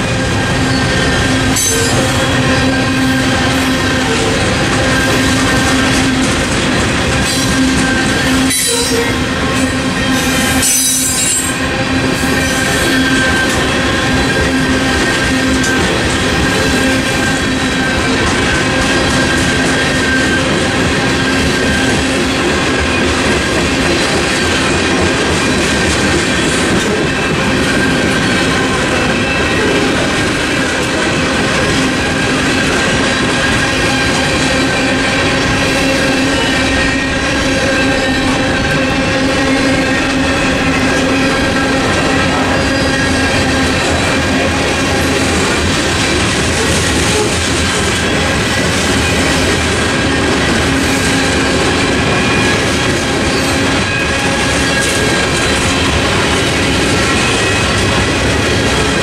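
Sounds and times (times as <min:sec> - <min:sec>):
train wheels rumbling and rattling: 0:00.0 - 0:59.0
high-pitched wheel squeal: 0:07.3 - 0:20.5.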